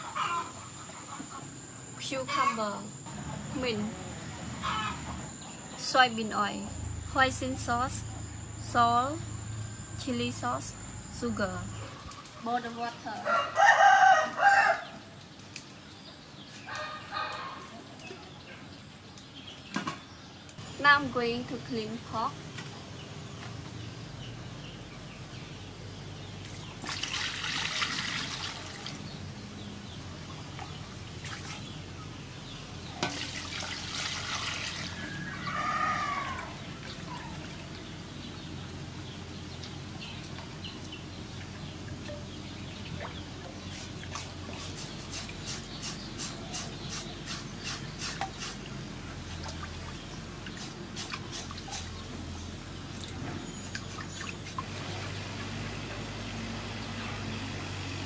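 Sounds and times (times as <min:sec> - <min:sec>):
water splashing in metal basin: 0:26.8 - 0:29.0, 0:33.0 - 0:35.2.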